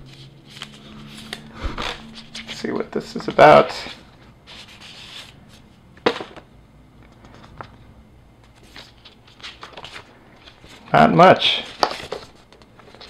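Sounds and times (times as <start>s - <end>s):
paper rustling: 0.0s - 5.6s, 8.4s - 13.0s.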